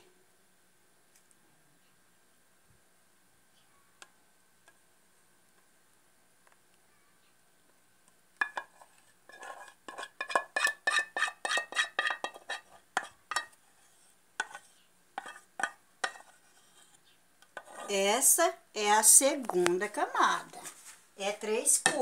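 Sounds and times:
spatula scraping a saucepan: 8.4s - 18.3s.

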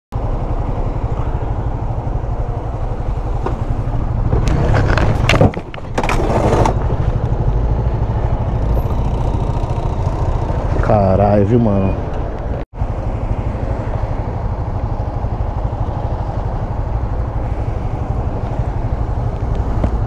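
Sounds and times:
motorcycle engine running: 6.2s - 10.9s.

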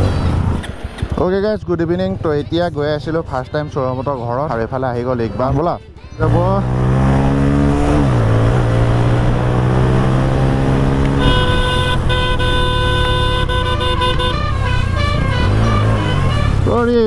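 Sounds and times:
motorcycle engine running: 9.1s - 17.0s
vehicle horn: 11.1s - 17.0s.

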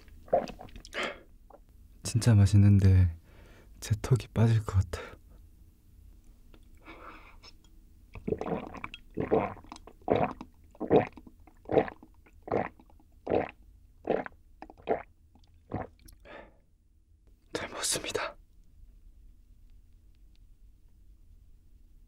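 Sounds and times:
person gulping a drink: 0.0s - 1.2s, 8.1s - 16.3s.

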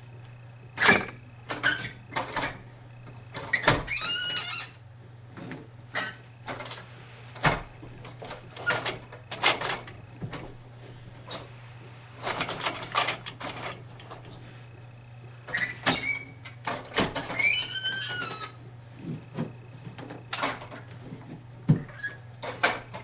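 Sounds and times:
steady low hum: 0.0s - 23.0s
short squeak: 11.8s - 13.6s.

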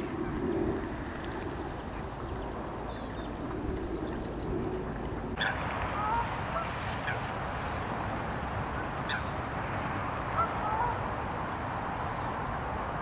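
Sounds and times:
steady outdoor hiss: 0.0s - 13.0s
distant birds calling: 5.4s - 7.3s, 10.3s - 12.4s.

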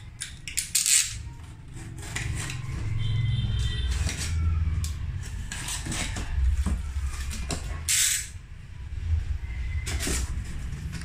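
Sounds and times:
knife slitting packing tape: 0.2s - 2.6s, 7.1s - 8.4s.

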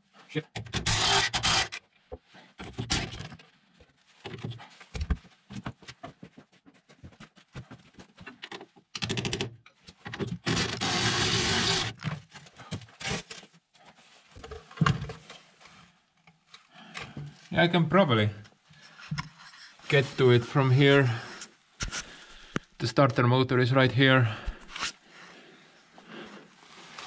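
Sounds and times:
tool scraping metal: 0.7s - 1.8s.

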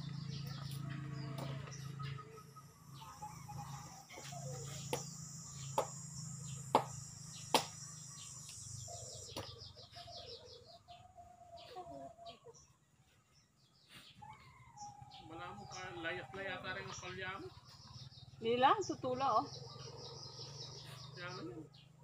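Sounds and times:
high steady insect buzz: 0.0s - 9.8s
chickens calling: 0.0s - 22.0s.

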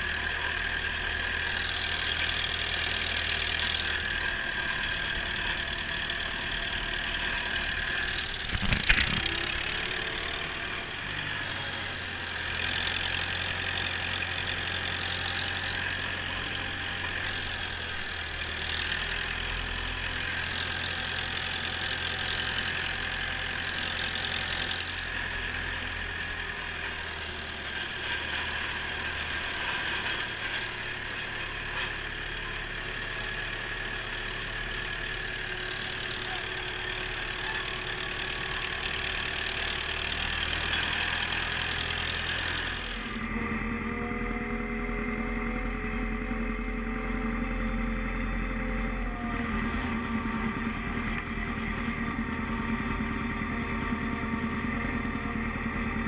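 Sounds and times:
tractor engine under load: 0.0s - 56.0s.

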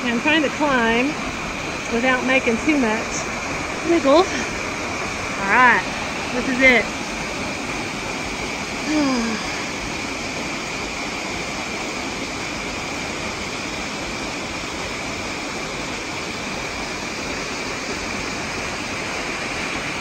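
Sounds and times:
high-pitched hum: 0.0s - 15.6s
waterfall rushing into pool: 0.0s - 20.0s.

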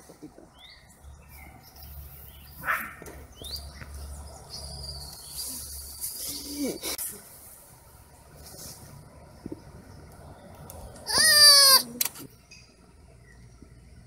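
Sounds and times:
birds chirping: 0.3s - 7.0s.

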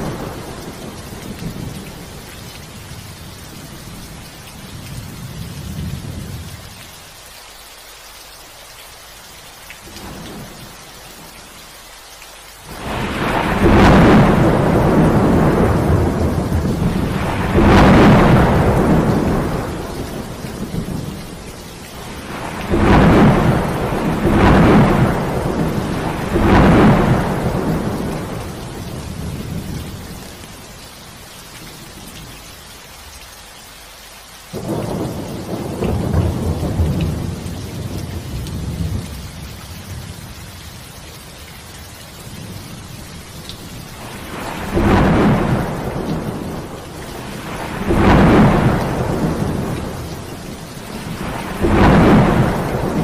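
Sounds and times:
thunder rumbling: 0.0s - 2.8s, 12.7s - 30.6s, 34.5s - 40.3s, 42.2s - 53.0s
heavy rain: 0.0s - 53.0s.

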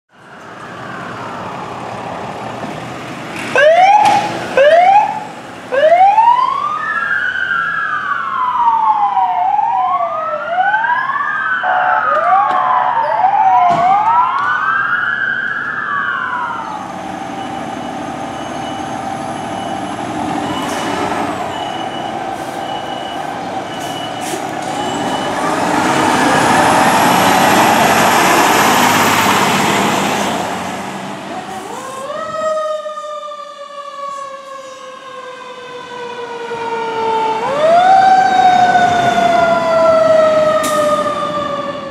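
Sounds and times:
vehicle noise: 0.1s - 41.9s
electronic siren wail: 3.6s - 17.6s, 31.5s - 41.9s
siren whoops: 3.6s - 19.8s, 31.4s - 41.9s
steady siren tone: 3.6s - 20.8s, 31.4s - 41.9s.

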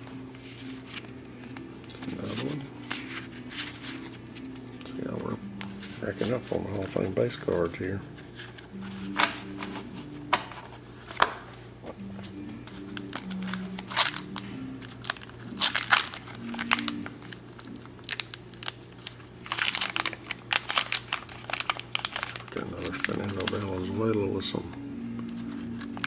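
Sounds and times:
wax paper wrapper crinkling and tearing: 0.5s - 9.9s, 12.6s - 24.5s, 25.2s - 26.0s.

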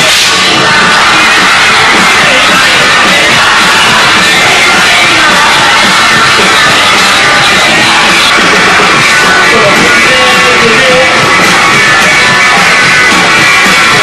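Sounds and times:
live rock band: 0.0s - 14.0s.

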